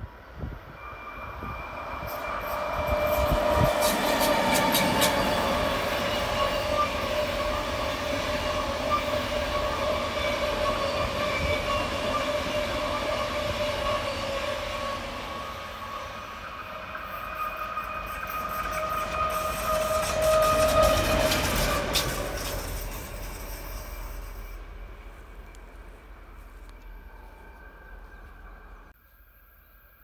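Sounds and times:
train wheels rumbling on rails: 0.0s - 28.9s.

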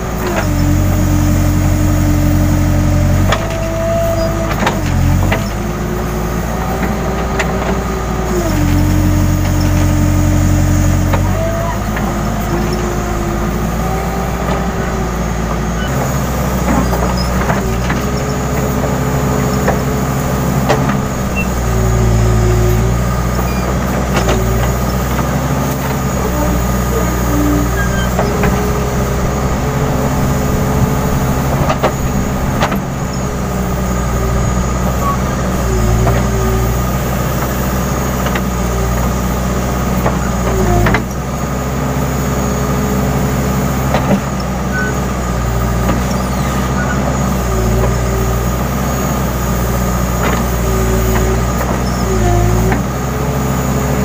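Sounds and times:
diesel engine under load: 0.0s - 54.0s.

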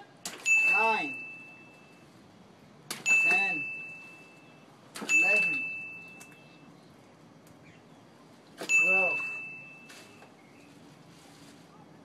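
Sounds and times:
bell ding: 0.4s - 2.0s, 3.1s - 4.4s, 5.1s - 6.2s, 8.7s - 10.2s
person calling out numbers: 0.7s - 1.2s, 3.1s - 3.7s, 5.1s - 5.7s, 8.7s - 9.4s.

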